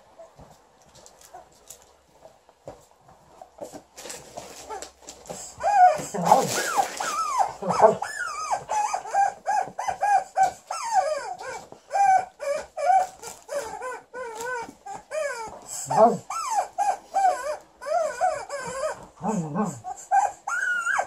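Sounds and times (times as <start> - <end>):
rustling: 0.1 - 19.2
dog whining and yipping: 5.5 - 21.0.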